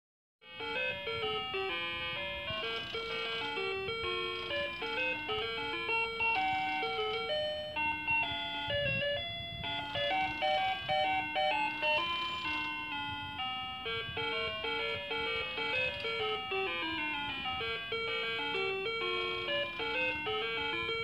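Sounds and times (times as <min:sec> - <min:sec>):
musical clock electronic tune: 0:00.4 - 0:21.0.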